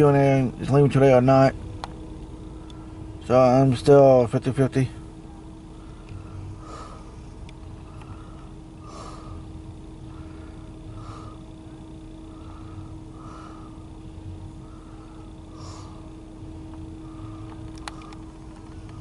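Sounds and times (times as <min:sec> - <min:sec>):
steady low hum: 0:00.0 - 0:19.0
person breathing through nose: 0:05.8 - 0:07.2, 0:07.8 - 0:11.5, 0:12.3 - 0:14.0, 0:14.6 - 0:16.2.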